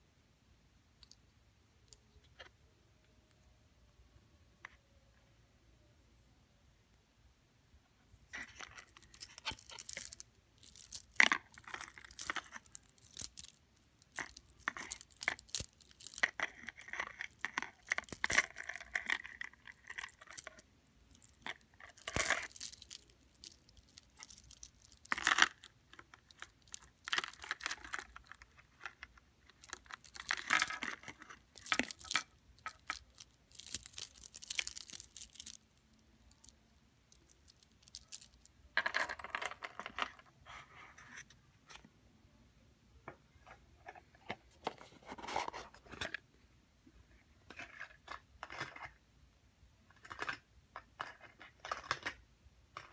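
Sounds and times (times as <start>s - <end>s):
metal chain links clinking: 8.5s - 25.6s, 26.2s - 28.4s, 29.6s - 36.5s, 37.1s - 40.1s.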